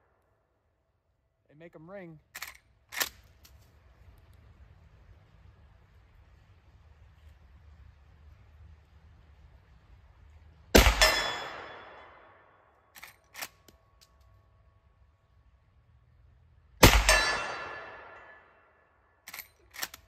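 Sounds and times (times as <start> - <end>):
steel target ringing: 10.8 - 12.3, 16.8 - 18.6
suppressed rifle shots: 10.8 - 12.4, 16.8 - 18.4
rifle lever clicks: 19.3 - 20.0.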